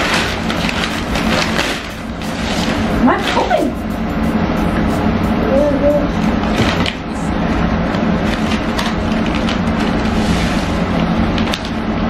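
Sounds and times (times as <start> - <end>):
wrapping paper crinkling and tearing: 0.0 - 3.4, 7.9 - 11.8
background music: 0.6 - 6.3.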